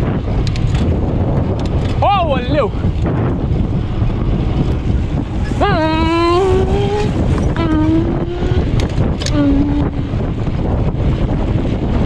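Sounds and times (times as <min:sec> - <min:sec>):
wind rushing over microphone: 0:00.0 - 0:12.0
person calling out held notes: 0:05.5 - 0:10.0.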